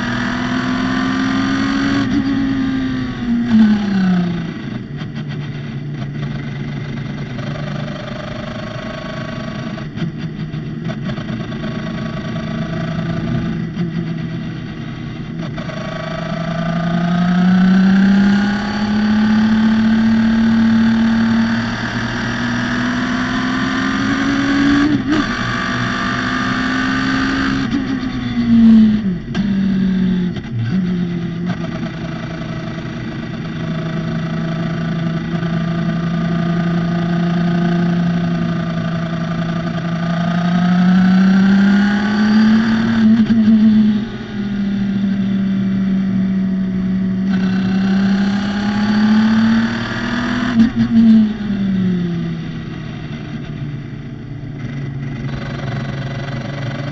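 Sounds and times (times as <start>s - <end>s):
engine blips on downshifts: 0.0s - 56.9s
race car engine accelerating through gears: 14.9s - 46.2s, 46.9s - 53.6s, 54.6s - 56.9s.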